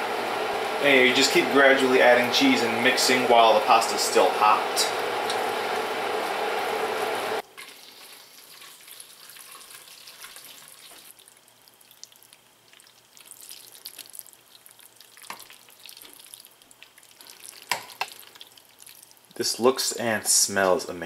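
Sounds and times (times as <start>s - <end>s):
spatula stirring thick pasta: 5.4s - 19.2s.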